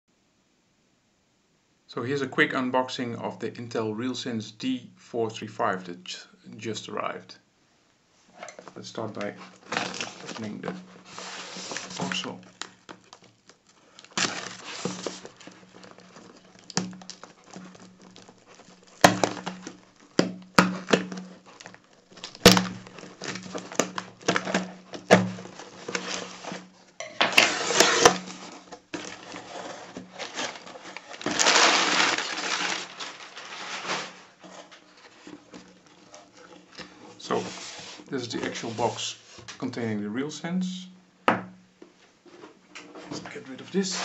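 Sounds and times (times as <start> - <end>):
tape tearing: 9.0 - 39.0, 43.7 - 44.0
cardboard flaps knocking and scraping: 9.2 - 13.2, 14.2 - 36.0
knife slitting packing tape: 14.0 - 26.6, 27.2 - 34.3.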